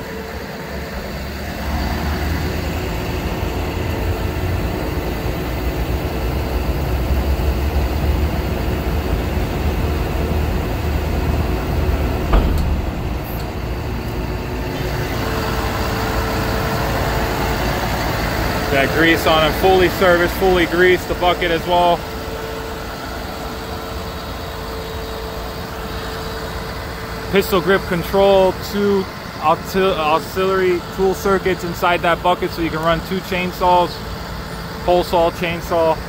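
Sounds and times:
diesel engine running: 0:00.0 - 0:36.0
sharp knock: 0:12.2 - 0:14.5.

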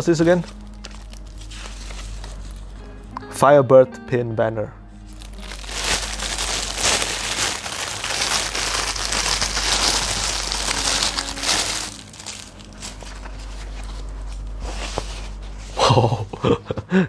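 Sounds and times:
plastic bag crinkling: 0:00.0 - 0:02.8, 0:05.1 - 0:14.6.

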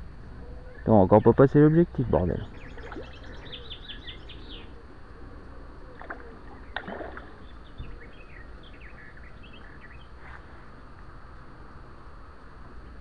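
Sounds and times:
steady low rumble: 0:00.0 - 0:13.0
small birds chirping: 0:00.4 - 0:04.8, 0:05.9 - 0:10.6.

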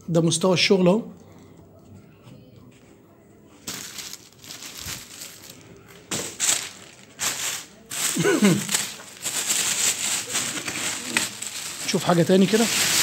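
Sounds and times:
plastic sack rustling: 0:03.6 - 0:13.0.

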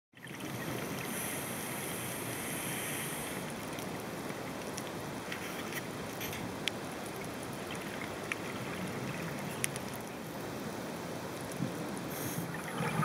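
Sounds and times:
underwater rushing water: 0:00.2 - 0:13.0
bright hiss: 0:01.0 - 0:03.5, 0:12.1 - 0:12.6
faint clicks: 0:09.2 - 0:10.2.

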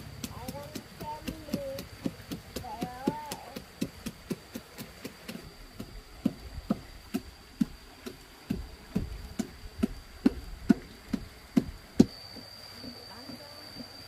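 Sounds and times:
faint high whine: 0:05.3 - 0:14.0.

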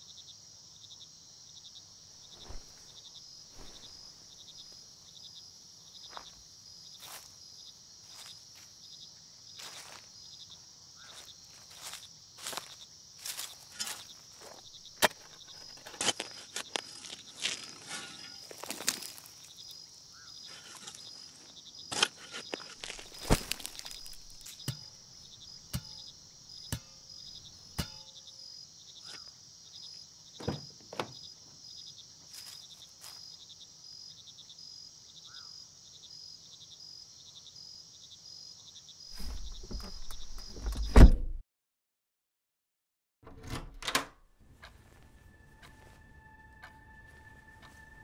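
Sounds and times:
crickets chirping: 0:00.0 - 0:41.0, 0:44.7 - 0:48.0
shovel digging into earth: 0:13.6 - 0:14.1, 0:15.0 - 0:19.3, 0:20.5 - 0:24.8.

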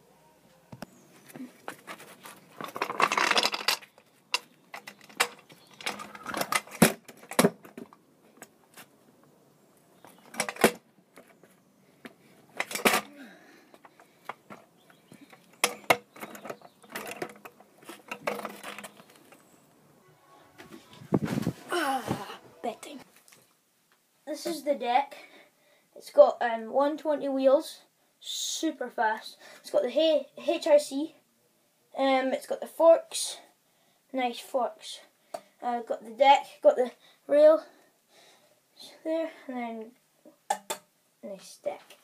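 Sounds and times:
scooter wheels rolling and scraping: 0:00.9 - 0:08.9, 0:13.7 - 0:19.7
scooter clattering on paving: 0:13.8 - 0:19.5.

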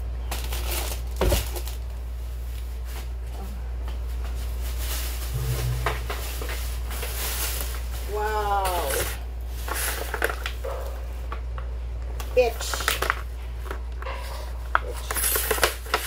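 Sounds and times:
steady low hum: 0:05.3 - 0:07.3.

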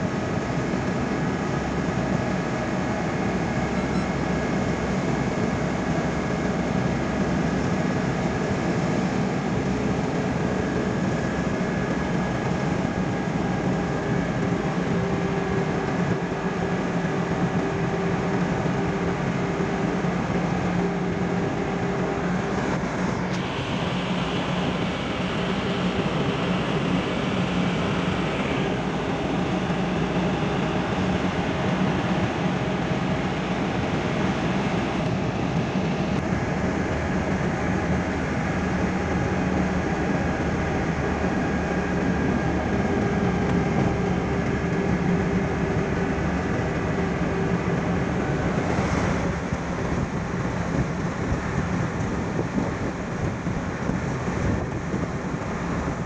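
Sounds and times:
car engine drone: 0:00.0 - 0:56.0
tyre and road noise: 0:26.8 - 0:56.0.

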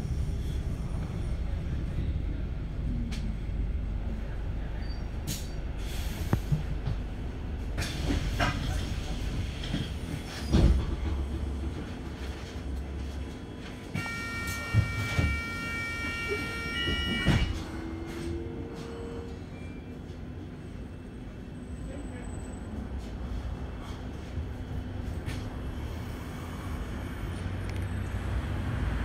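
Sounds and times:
bus engine rumble: 0:00.0 - 0:29.0
bus body knocks and rattles: 0:06.4 - 0:12.2.

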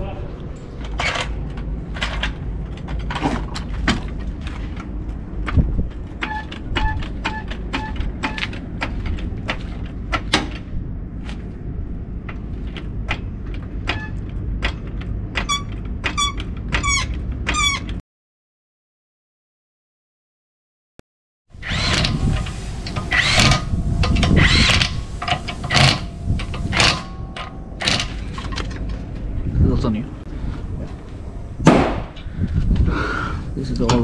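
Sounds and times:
low rumble: 0:00.0 - 0:17.5, 0:21.6 - 0:34.0
floor jack squeaking: 0:06.2 - 0:08.5, 0:15.4 - 0:18.0, 0:21.6 - 0:28.7
metal knocks and clanks: 0:21.9 - 0:29.4.

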